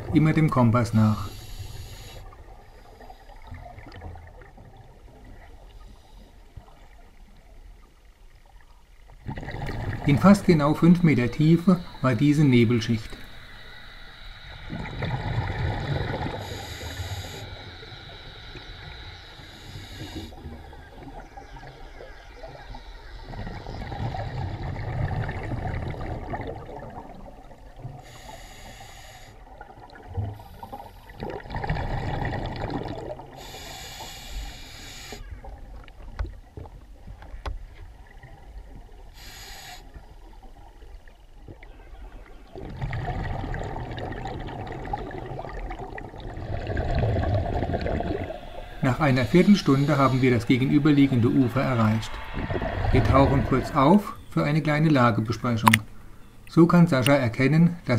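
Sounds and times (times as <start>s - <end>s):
regulator inhalation hiss: 1.0s - 3.5s, 10.7s - 21.2s, 27.9s - 29.6s, 30.4s - 31.3s, 33.3s - 35.4s, 39.1s - 40.0s, 47.8s - 54.4s
exhaled bubbles rumbling: 9.1s - 17.5s, 20.1s - 27.9s, 31.2s - 33.4s, 40.3s - 55.8s.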